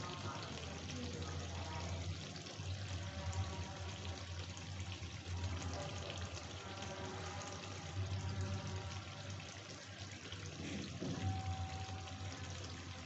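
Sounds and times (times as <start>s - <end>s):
gravy sizzling and bubbling: 0.0s - 13.0s
low steady hum: 0.0s - 13.0s.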